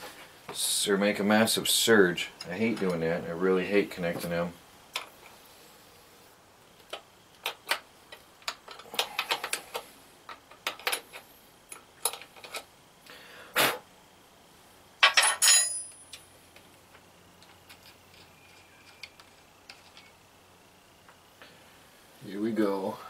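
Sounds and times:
metal battery hardware clinking: 15.0s - 16.2s.

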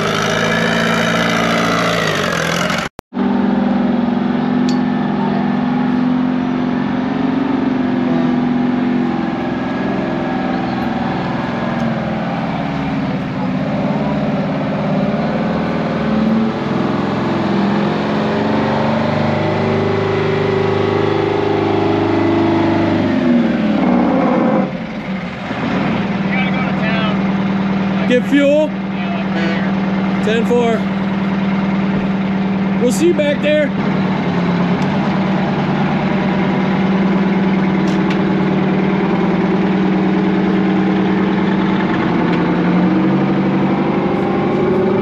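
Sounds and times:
diesel truck engine: 0.0s - 45.0s.

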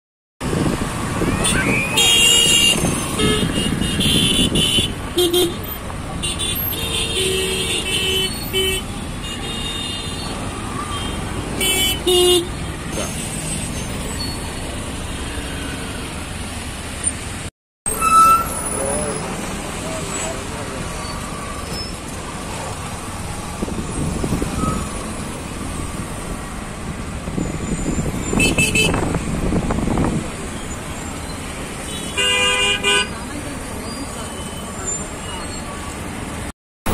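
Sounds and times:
traffic engines rumbling: 0.4s - 36.9s
vehicle horns honking: 1.3s - 12.7s, 28.2s - 29.2s, 31.8s - 33.3s.

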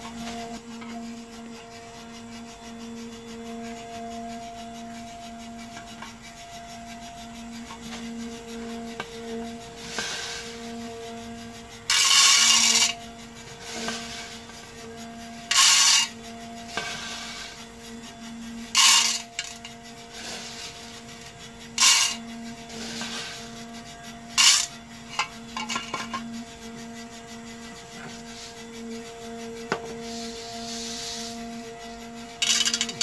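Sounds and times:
coffee beans rattling into jar: 18.8s - 19.6s, 21.8s - 22.2s, 24.4s - 26.1s, 32.4s - 33.0s.

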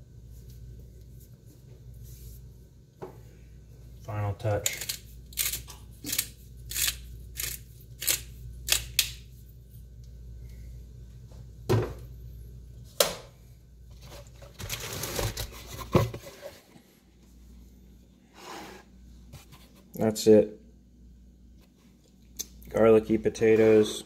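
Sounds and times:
rustling handling noise: 13.8s - 17.6s.

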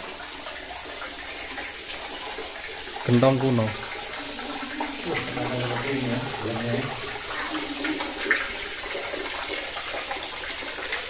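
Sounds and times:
water running and splashing: 0.0s - 11.0s
man talking indistinctly: 3.1s - 3.8s, 5.0s - 7.0s.

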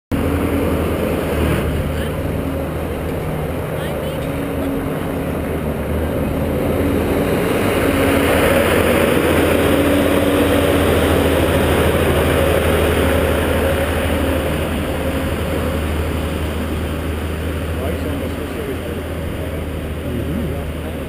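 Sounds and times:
machine engine drone: 0.1s - 21.0s.

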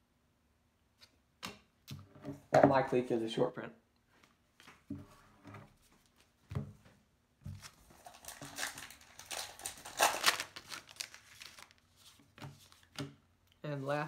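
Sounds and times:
wrapper tearing and crinkling: 7.9s - 11.9s.

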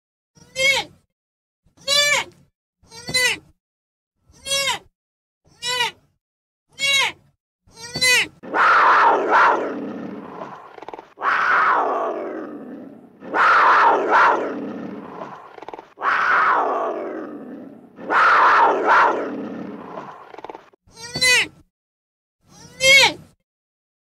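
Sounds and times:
animal harsh call: 8.4s - 20.7s.

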